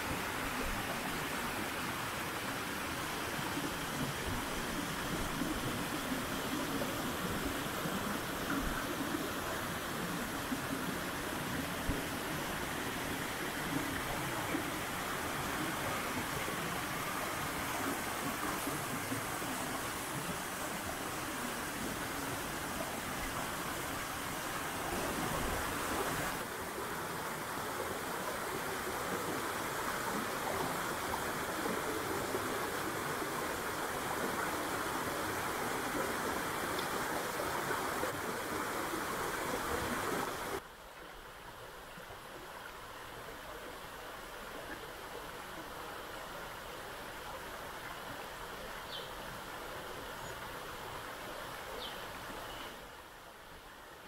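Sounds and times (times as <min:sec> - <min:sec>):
stream and waterfall rushing: 0:00.0 - 0:54.0.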